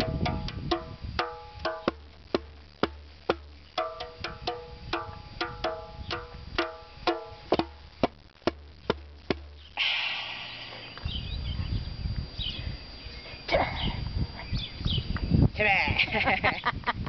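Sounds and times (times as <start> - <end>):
djembe drumming: 0.0 - 9.6.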